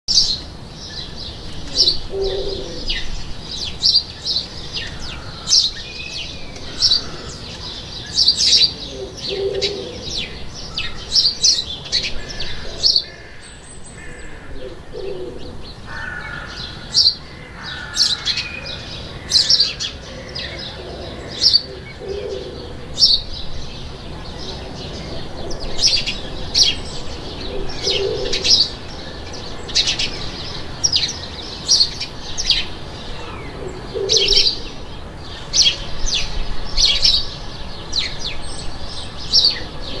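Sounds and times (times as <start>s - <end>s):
lower bird call: 0.1s - 23.3s, 24.9s - 30.2s
small birds chirping: 0.1s - 40.0s.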